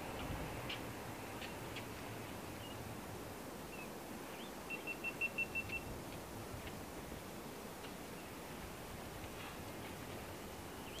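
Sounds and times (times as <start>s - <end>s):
background hiss: 0.0s - 11.0s
faint chirps: 3.7s - 5.9s.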